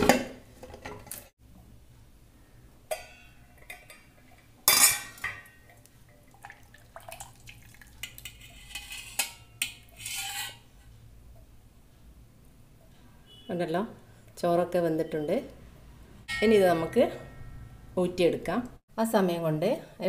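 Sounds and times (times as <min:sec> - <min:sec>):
steel ladle clinking and scraping: 0:02.9 - 0:06.2, 0:08.0 - 0:10.7.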